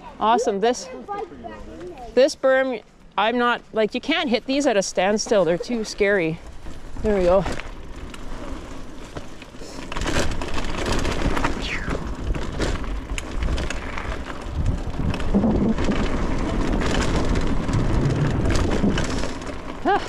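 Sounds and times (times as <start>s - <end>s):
tyres rumbling on dirt: 1.7s - 20.0s
bike knocks and rattles: 6.4s - 20.0s
wind rushing over microphone: 10.9s - 19.5s.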